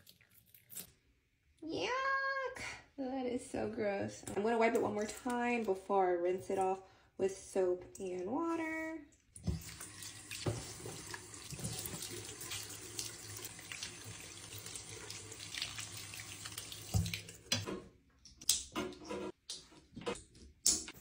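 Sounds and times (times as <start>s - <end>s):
tap water running into sink: 9.4s - 17.7s.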